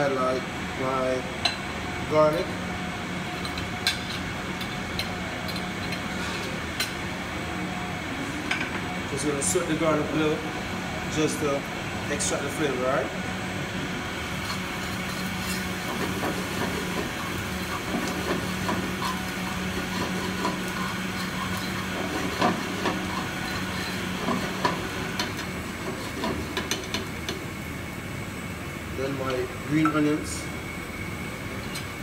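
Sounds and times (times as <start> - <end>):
steady low hum: 0.0 - 32.0
garlic sizzling in oil: 14.3 - 27.7
fork scraping pan: 14.4 - 24.7.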